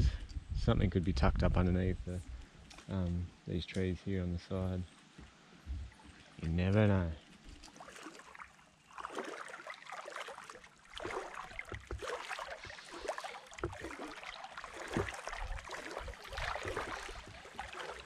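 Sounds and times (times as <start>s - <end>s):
wading through shallow water: 4.6s - 18.0s
low thuds: 5.2s - 6.0s.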